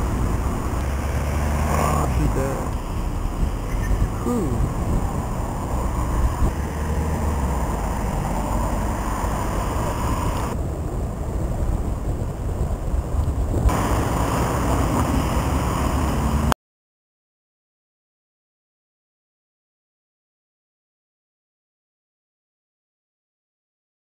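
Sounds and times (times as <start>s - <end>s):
wind buffeting microphone: 0.0s - 16.5s.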